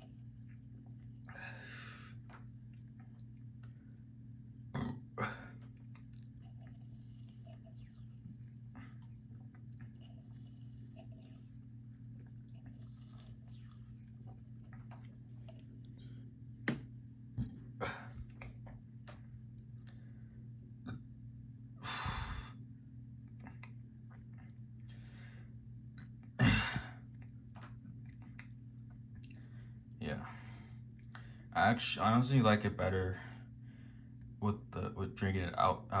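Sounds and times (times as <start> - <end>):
lip smacks and sips: 0.0 - 1.4, 2.1 - 4.1, 5.5 - 20.0, 23.2 - 25.0, 27.1 - 29.6
steady low hum: 0.0 - 36.0
breathy mouth sounds: 4.7 - 16.3, 23.3 - 26.2.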